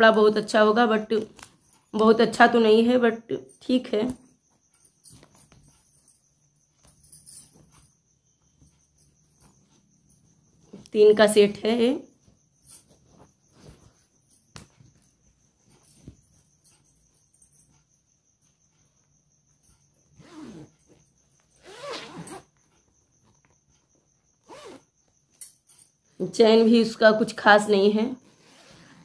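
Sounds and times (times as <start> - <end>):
fabric bag rustling: 12.2 - 16.4.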